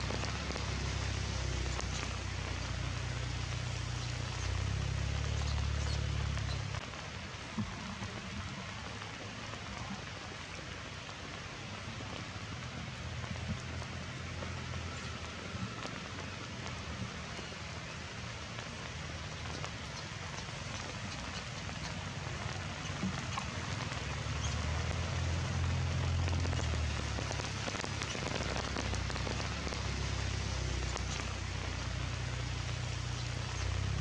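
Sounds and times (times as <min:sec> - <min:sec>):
low rumble: 0:00.0 - 0:06.8, 0:22.3 - 0:34.0
rain on leaves: 0:00.0 - 0:34.0.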